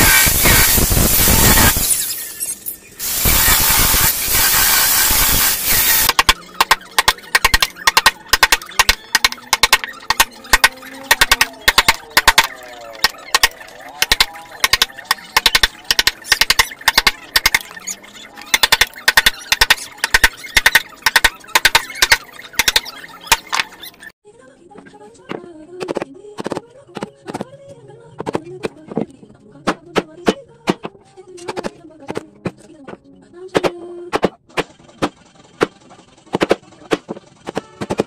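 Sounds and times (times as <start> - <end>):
hammer striking wood chisel: 6.1 - 17.6.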